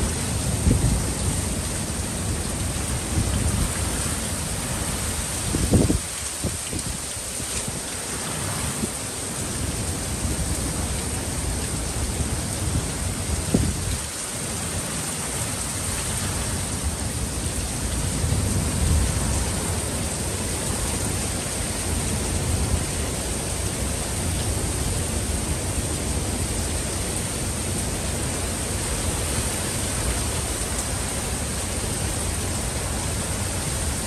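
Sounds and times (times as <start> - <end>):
heavy rain falling: 0.0 - 34.0.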